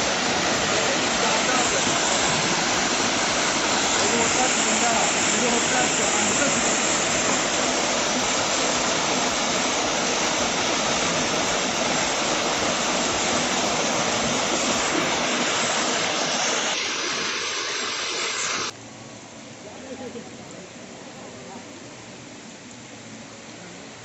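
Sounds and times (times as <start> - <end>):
waterfall splashing into rock pool: 0.0 - 18.3.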